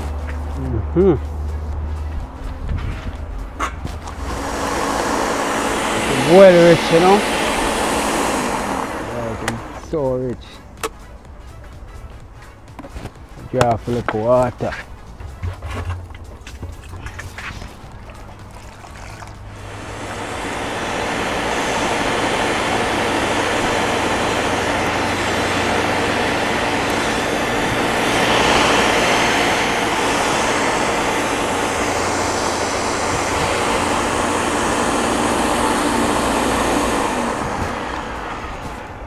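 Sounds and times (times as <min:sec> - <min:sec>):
electric blender running: 0:04.1 - 0:09.9, 0:18.9 - 0:38.9.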